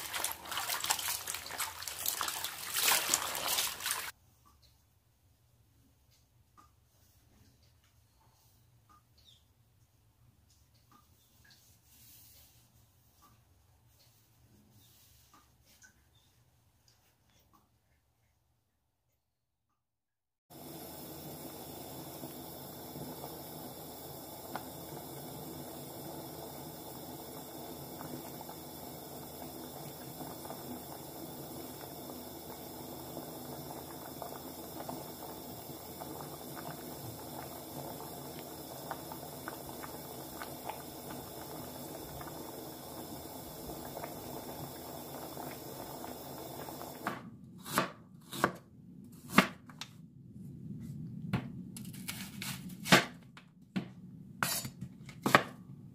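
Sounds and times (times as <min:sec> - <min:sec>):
liquid boiling in a pot: 0:00.0 - 0:04.2, 0:20.5 - 0:47.2.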